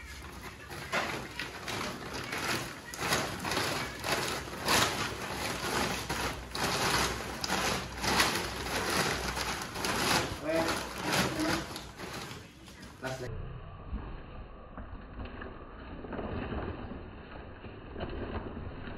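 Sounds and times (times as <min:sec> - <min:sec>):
plastic sack rustling: 0:00.0 - 0:13.3.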